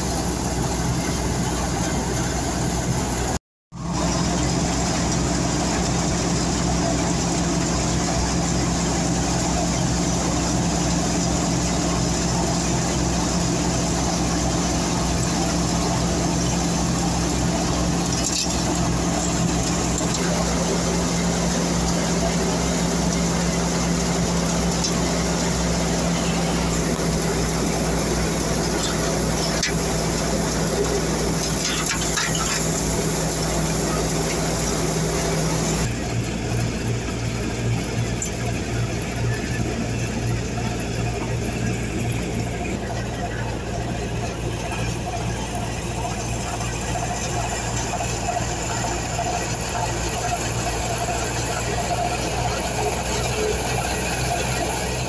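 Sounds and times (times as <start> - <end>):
engine hum: 0.0 - 55.0
threshing drum turning: 3.2 - 38.5.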